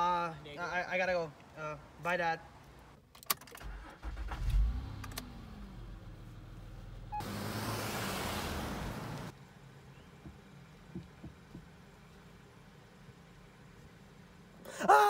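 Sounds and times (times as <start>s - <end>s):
car engine rumbling: 3.6s - 14.7s
car driving past: 4.3s - 9.3s.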